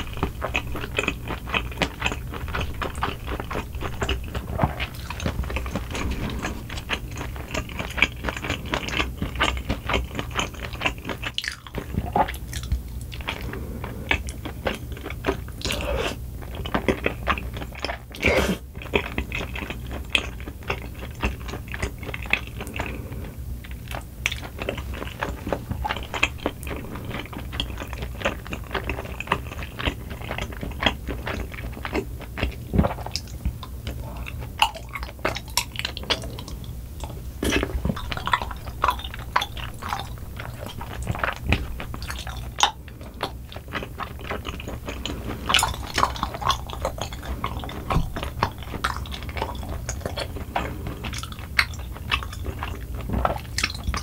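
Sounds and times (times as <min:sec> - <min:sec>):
chewing soft food: 0:00.0 - 0:54.0
steady low hum: 0:00.0 - 0:54.0.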